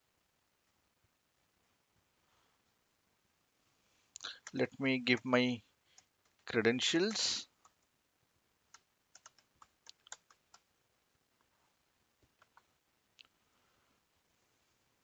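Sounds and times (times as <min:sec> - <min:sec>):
faint keyboard typing: 0:04.1 - 0:04.8, 0:05.8 - 0:08.0, 0:08.6 - 0:10.8, 0:12.2 - 0:13.4.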